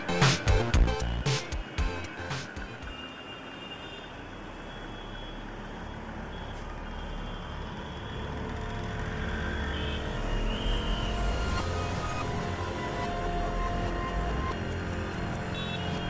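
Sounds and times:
low rumbling drone: 8.9 - 15.8.

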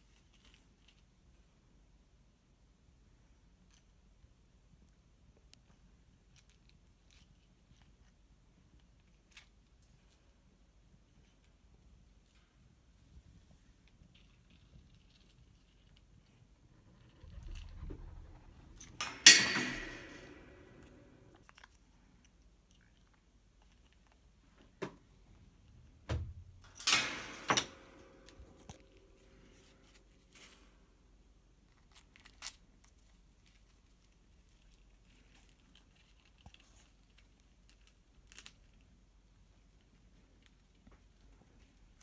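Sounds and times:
bird crunching and rustling toy: 0.0 - 1.8, 3.4 - 19.0, 20.8 - 24.8, 28.2 - 42.0
loud sudden clatters: 16.8 - 21.4.

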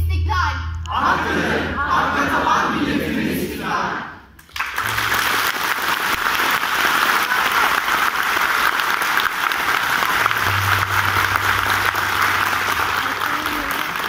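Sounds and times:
audience applause: 4.4 - 14.0.

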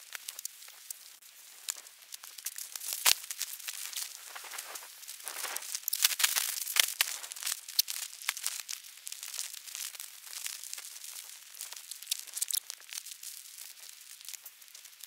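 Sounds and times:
bags rustling and crinkling: 2.7 - 11.3.

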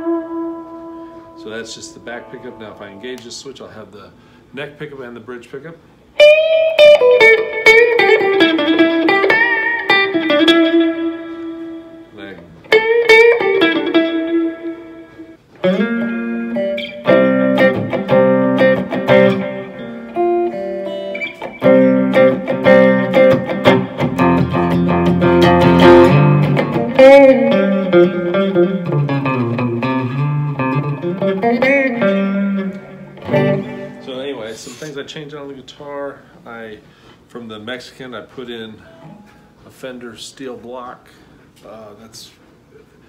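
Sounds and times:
clean electric guitar playing: 0.0 - 3.7, 6.2 - 35.0.

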